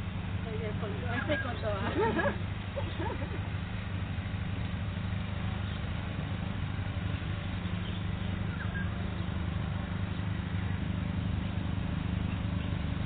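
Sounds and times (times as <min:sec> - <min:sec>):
low outdoor rumble: 0:00.0 - 0:13.0
faint chirp: 0:07.6 - 0:09.3.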